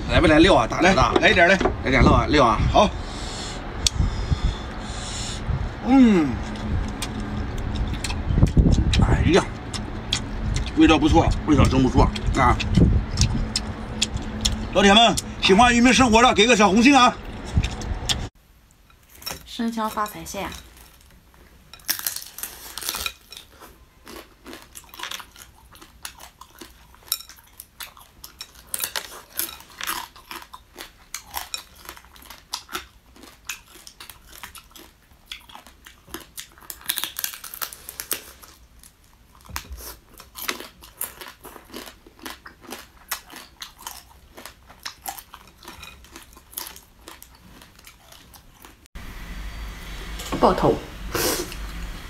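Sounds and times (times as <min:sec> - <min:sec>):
crunching and chewing crabs: 0:06.4 - 0:15.4, 0:19.0 - 0:48.9.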